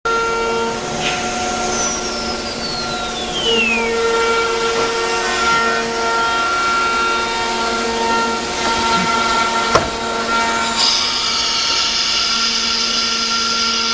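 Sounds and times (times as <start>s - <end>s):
high whine falling in pitch: 0.1s - 8.8s
router spindle whine: 0.1s - 13.9s
loud noise hiss: 0.6s - 7.6s, 10.5s - 13.9s.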